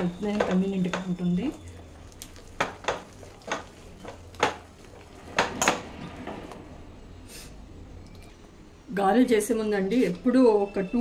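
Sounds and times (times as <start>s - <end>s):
batter squishing: 0.0s - 6.7s.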